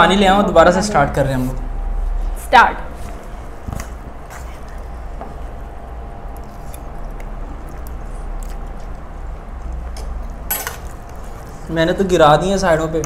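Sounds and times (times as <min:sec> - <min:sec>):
steady low hum: 0:00.0 - 0:13.0
faint chewing: 0:03.1 - 0:11.7.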